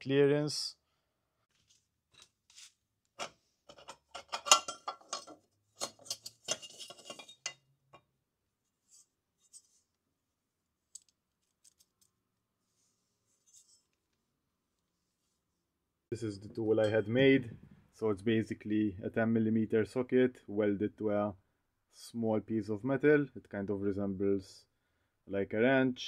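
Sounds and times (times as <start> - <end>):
metal tools clinking and scraping: 2.1 - 7.6.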